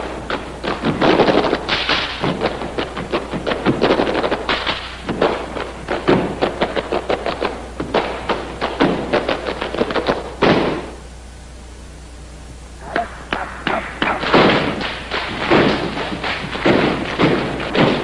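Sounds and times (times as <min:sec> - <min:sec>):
boots stamping on a stage: 0:13.3 - 0:18.0.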